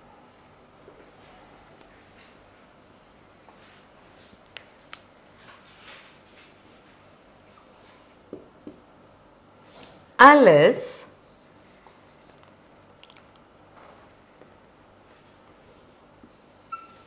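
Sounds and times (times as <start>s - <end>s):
marker scratching on whiteboard: 6.7s - 8.4s
marker tapping on whiteboard: 8.3s - 8.8s.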